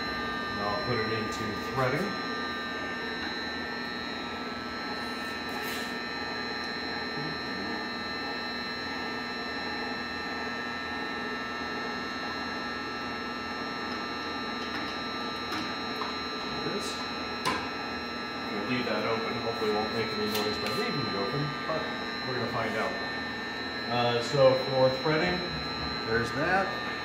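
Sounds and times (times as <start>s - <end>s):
lathe running: 0.0s - 27.0s.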